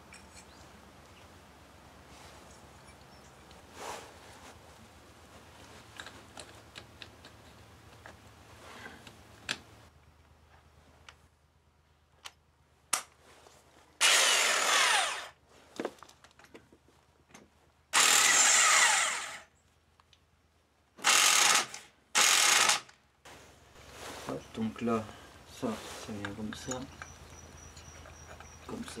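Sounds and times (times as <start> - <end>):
impact wrench bursts: 14.0 - 15.4, 18.0 - 19.5, 21.0 - 22.9.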